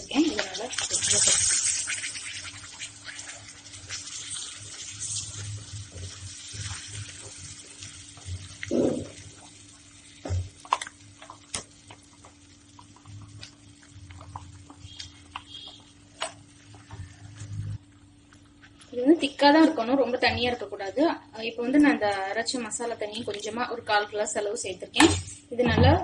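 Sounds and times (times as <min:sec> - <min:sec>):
paste sizzling in butter: 0:00.1 - 0:17.3.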